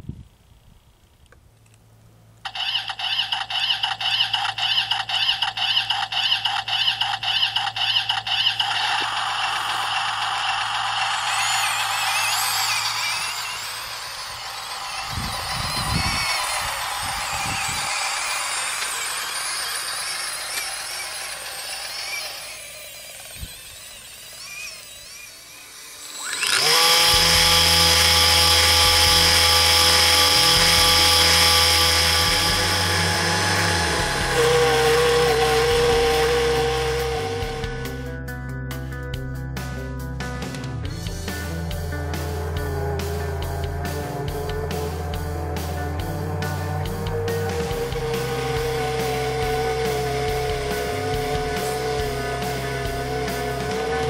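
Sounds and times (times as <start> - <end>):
toy electric motors whining: 2.4 - 38.1, 42.2 - 54.0
music with held tones and bass: 26.7 - 54.0.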